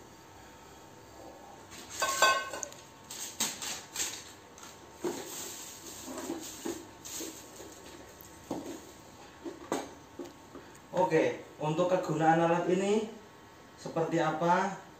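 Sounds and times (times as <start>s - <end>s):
metal pot clanking: 2.0s - 2.7s.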